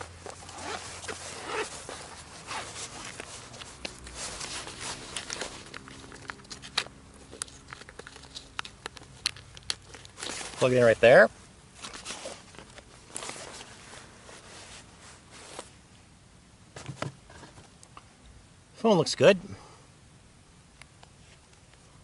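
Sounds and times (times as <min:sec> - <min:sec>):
zipper pulled: 0:00.0 - 0:08.7
fabric rustling and scraping: 0:00.0 - 0:08.8, 0:09.8 - 0:15.8.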